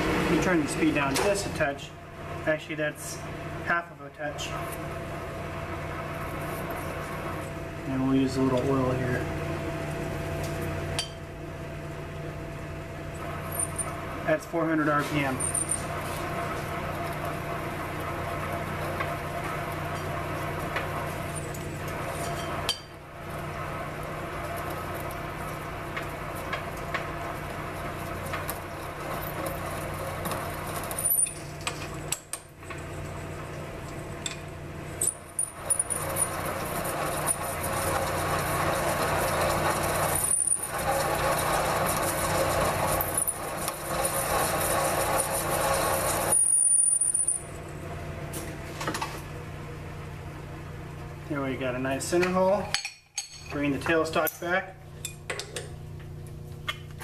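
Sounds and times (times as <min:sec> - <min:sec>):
lathe humming: 0:15.8 - 0:31.0, 0:35.5 - 0:46.7
drill cutting metal: 0:35.6 - 0:46.4.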